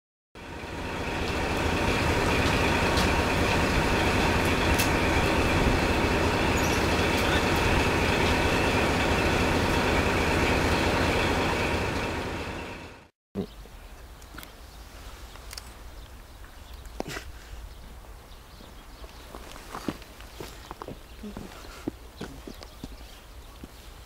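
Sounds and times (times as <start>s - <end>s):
diesel railcar idling: 0.4s - 13.1s.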